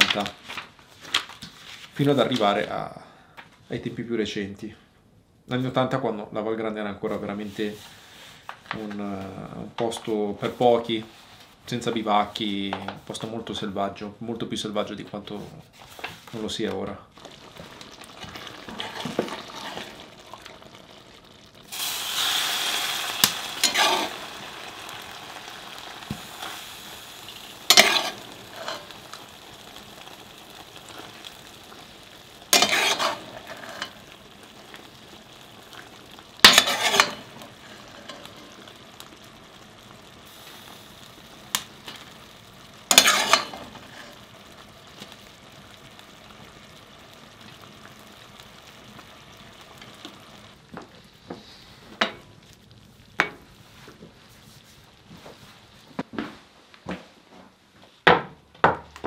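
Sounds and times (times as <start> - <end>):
stew sizzling on stove: 0.0 - 2.8, 7.0 - 14.0, 14.7 - 56.2.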